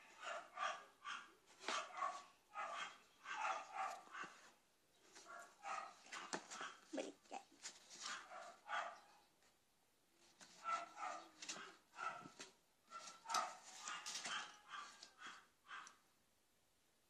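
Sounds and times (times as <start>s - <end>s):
small dog yapping: 13.0s - 15.9s.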